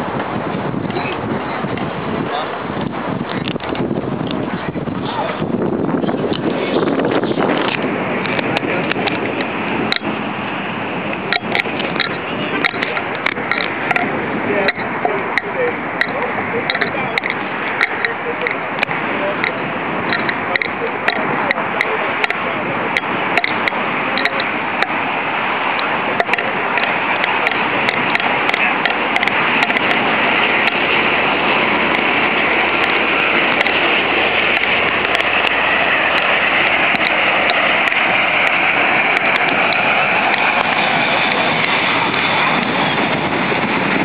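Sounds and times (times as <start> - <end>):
jet engine rush: 0.0 - 44.0
sharp clicks: 7.5 - 10.1, 11.1 - 22.4, 23.0 - 25.0, 25.7 - 30.9, 31.9 - 42.7.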